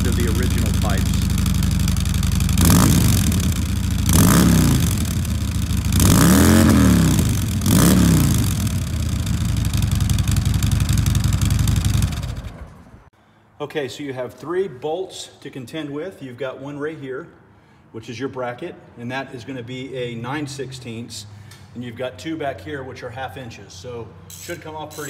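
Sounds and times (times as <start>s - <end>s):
motorcycle engine idling: 0.0s - 13.0s
motorcycle throttle blips: 0.0s - 13.0s.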